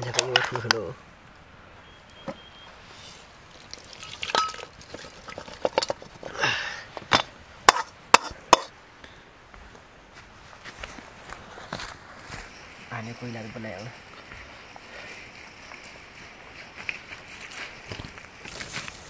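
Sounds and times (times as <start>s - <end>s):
scraping rustle: 14.5s - 19.0s.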